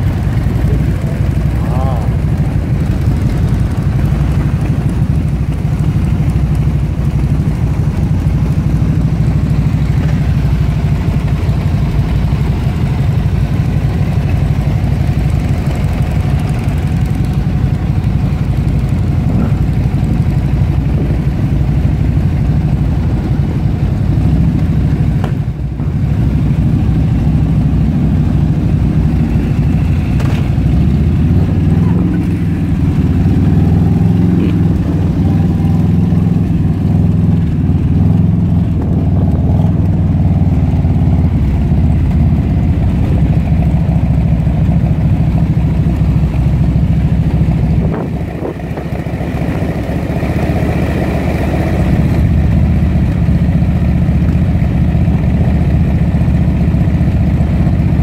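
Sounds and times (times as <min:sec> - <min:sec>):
motorcycle engines idling: 0:00.0 - 0:58.0
motorbike riding past: 0:29.2 - 0:37.3.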